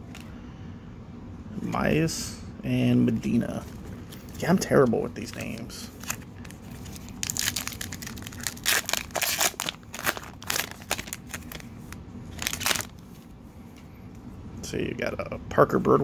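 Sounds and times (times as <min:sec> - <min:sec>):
foil wrapper crinkling and tearing: 0:05.2 - 0:12.9.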